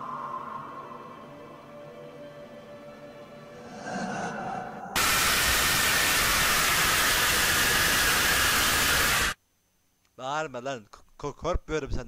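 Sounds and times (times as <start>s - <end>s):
eerie ambience: 0.0s - 9.4s
loud static-like jumpscare blast: 5.0s - 9.4s.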